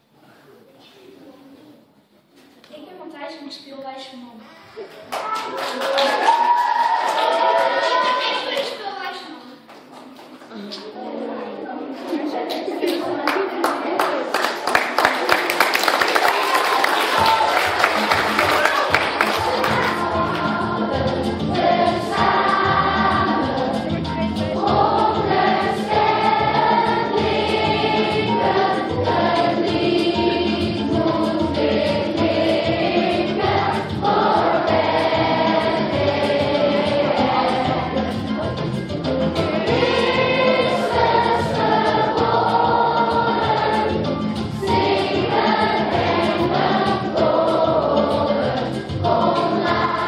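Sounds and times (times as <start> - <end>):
children's choir singing: 6.6 - 9.0, 10.8 - 50.0
instrumental backing: 17.1 - 50.0.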